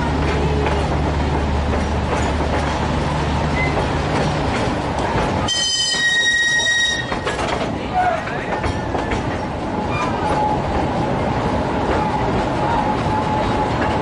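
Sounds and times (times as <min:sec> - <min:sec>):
train carriages rumbling and rattling: 0:00.0 - 0:14.0
train wheel squeal: 0:03.5 - 0:03.8, 0:05.5 - 0:07.4, 0:09.9 - 0:10.6.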